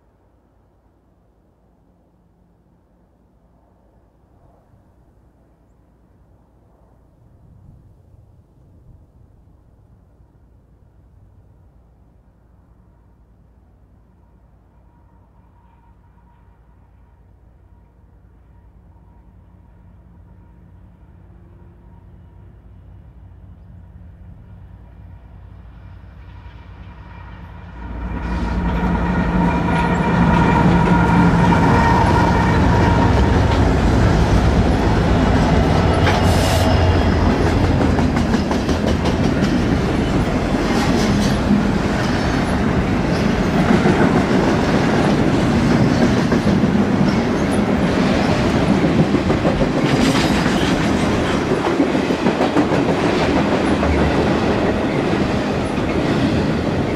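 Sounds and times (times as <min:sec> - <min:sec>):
diesel locomotive drone: 0:00.0 - 0:56.9
train wheels clickety-clack: 0:26.2 - 0:56.9.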